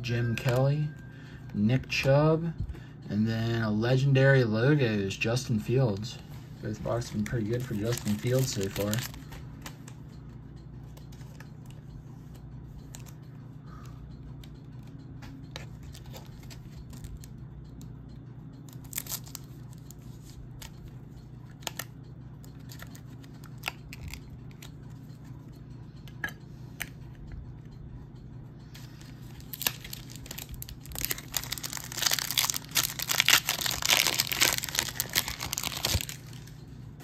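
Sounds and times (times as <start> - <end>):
steady low hum: 0.0 - 37.0
cards and plastic holders clicking: 6.8 - 10.0, 21.5 - 24.8.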